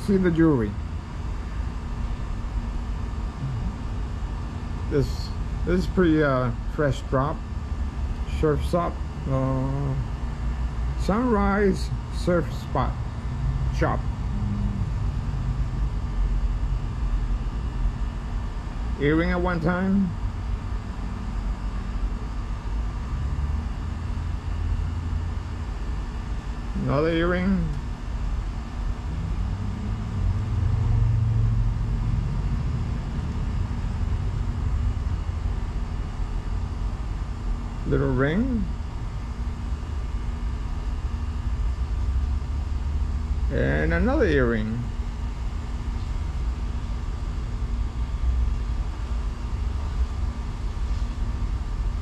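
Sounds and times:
deep hum: 0:00.0 - 0:52.0
low rumble: 0:03.4 - 0:03.9, 0:12.8 - 0:17.2, 0:28.4 - 0:35.5.

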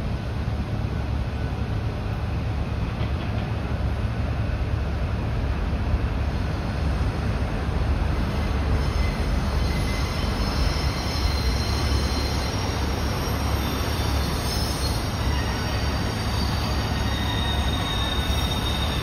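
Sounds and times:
train rumbling on rails: 0:00.0 - 0:19.0
high wheel squeals: 0:08.1 - 0:19.0.

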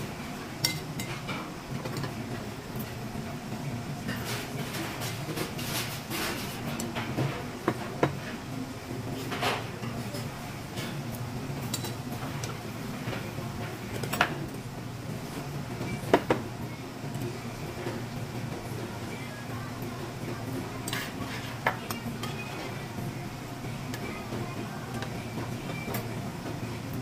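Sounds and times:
metal chopsticks clinking on pot: 0:00.6 - 0:01.2.

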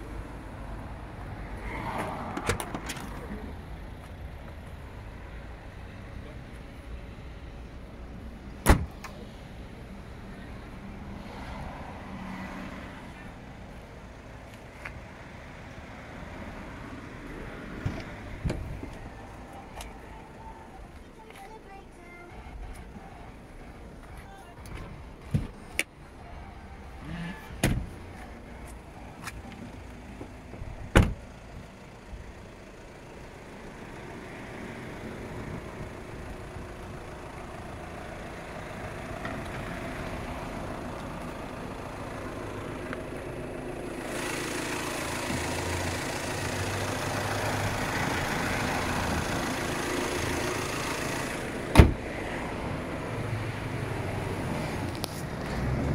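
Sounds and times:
outdoor background noise: 0:00.0 - 0:55.9
car door shutting: 0:02.3 - 0:03.2, 0:08.6 - 0:09.2, 0:17.8 - 0:19.0, 0:25.3 - 0:25.9, 0:27.4 - 0:28.0, 0:30.5 - 0:31.2, 0:51.7 - 0:52.1.

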